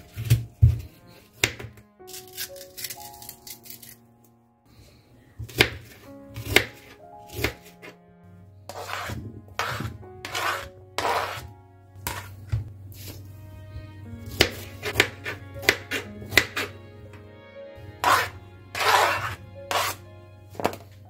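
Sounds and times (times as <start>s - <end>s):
background music: 0.0s - 21.0s
knife scraping cutting board: 8.7s - 13.3s, 14.3s - 16.7s, 18.0s - 20.0s
knife striking cutting board: 14.3s - 16.7s, 18.0s - 20.0s.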